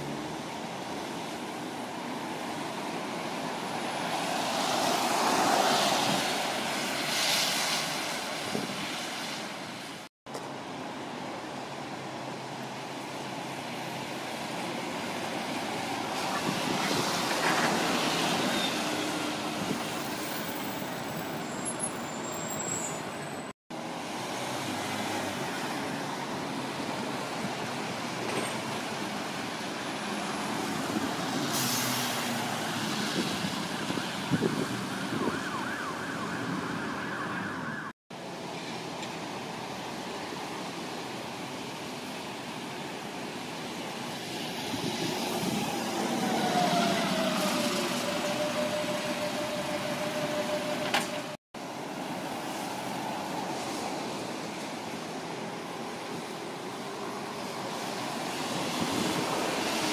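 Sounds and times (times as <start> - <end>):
buses and cars passing: 0.0 - 59.9
tyre noise on a wet road: 0.0 - 59.9
siren: 32.5 - 38.0, 45.3 - 51.4.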